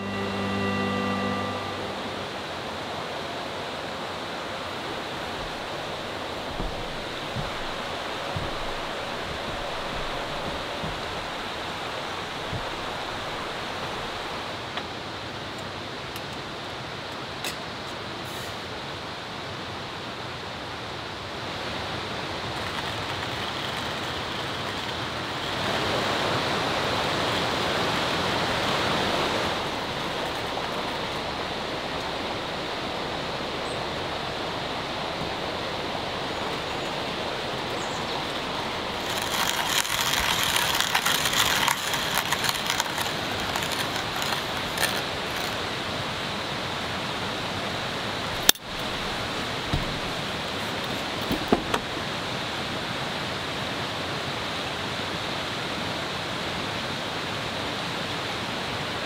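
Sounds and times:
stream rushing: 0.0s - 59.0s
crackling and small clicks: 39.0s - 45.7s.

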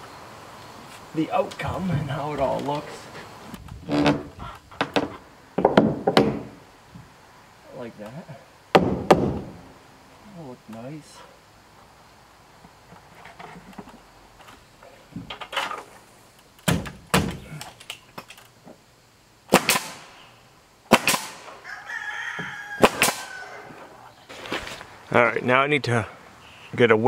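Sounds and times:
nail gun shots: 4.9s - 6.6s, 8.7s - 9.6s, 16.6s - 17.4s, 19.5s - 20.2s, 20.9s - 21.6s, 22.8s - 23.3s
rooster crowing: 21.6s - 24.1s.

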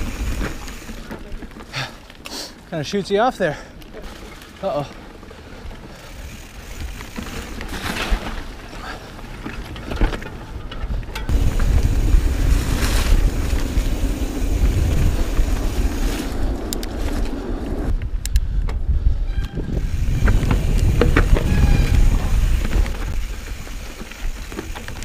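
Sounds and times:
bike clicks and rattles: 0.0s - 25.0s
tyres rumbling on rough trail: 0.0s - 25.0s
wind buffeting microphone: 10.8s - 25.0s.

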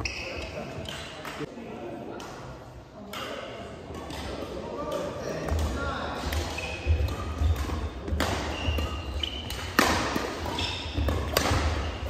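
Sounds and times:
shoes squeaking on court: 0.0s - 1.2s, 6.4s - 12.0s
racket hitting shuttlecock: 3.1s - 12.0s.

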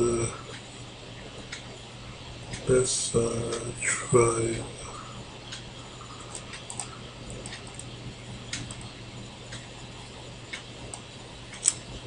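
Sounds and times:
faint steady hum: 0.0s - 12.0s
computer mouse clicking: 5.5s - 7.9s, 8.5s - 8.9s, 10.5s - 11.9s.

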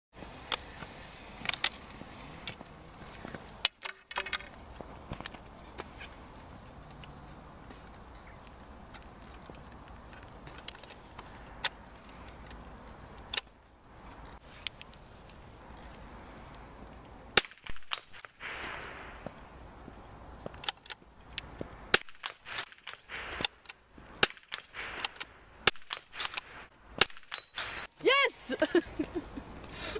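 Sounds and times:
roller skis rolling on asphalt: 0.1s - 17.4s, 18.6s - 22.0s, 27.8s - 29.9s
ski pole tips clicking: 0.4s - 2.6s, 3.4s - 4.6s
rifle clicks and knocks: 3.6s - 5.4s, 20.4s - 27.8s
rifle shots: 24.2s - 27.9s.

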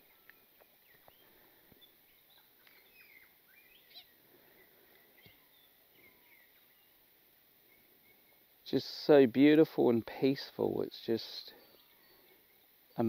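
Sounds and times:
birds chirping and whistling: 0.0s - 8.5s, 11.4s - 13.0s.

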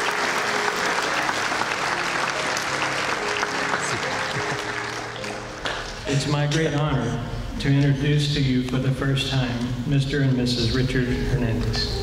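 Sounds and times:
guests applauding: 0.0s - 6.2s
music: 0.0s - 12.0s.

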